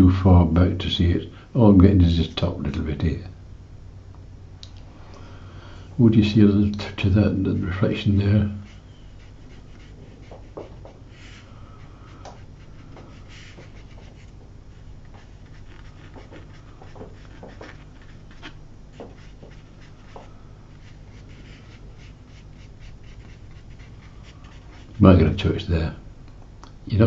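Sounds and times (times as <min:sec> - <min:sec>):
steady low hum: 0:00.0 - 0:27.0
brush scratching on paper: 0:07.9 - 0:25.0.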